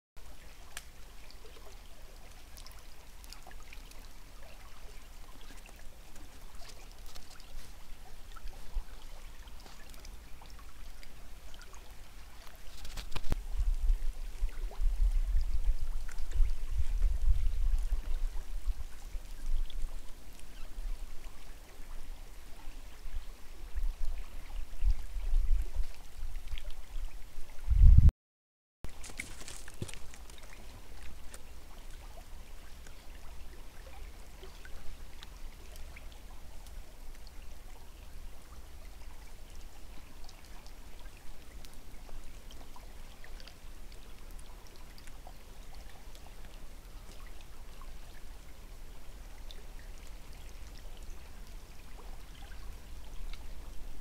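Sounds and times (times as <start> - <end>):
water drips: 0.2 - 27.6, 28.9 - 54.0
faint running stream water: 0.2 - 27.8, 28.8 - 54.0
low rumbling on microphone: 13.3 - 21.4, 22.0 - 28.1.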